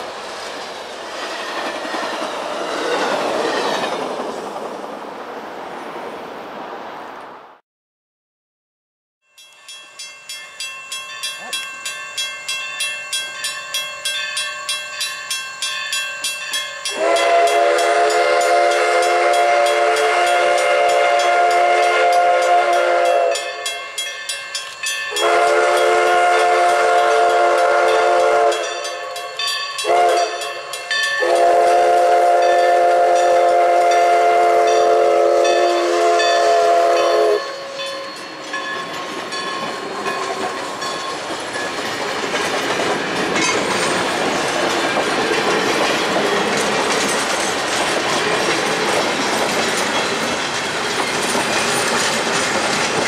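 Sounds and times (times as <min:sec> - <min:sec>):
train wheels rumbling: 0:00.0 - 0:05.8, 0:10.8 - 0:53.0
steam locomotive exhaust beats: 0:10.9 - 0:53.0
train chime whistle blasts: 0:16.5 - 0:38.7.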